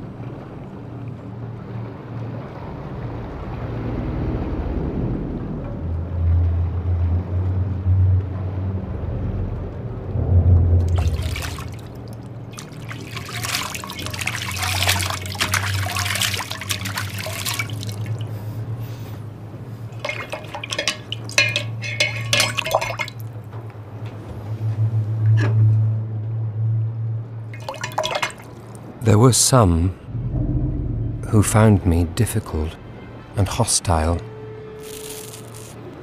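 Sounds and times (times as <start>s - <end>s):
low steady hum: 0.0s - 33.4s
liquid splashing and trickling: 10.8s - 23.5s, 27.5s - 28.9s.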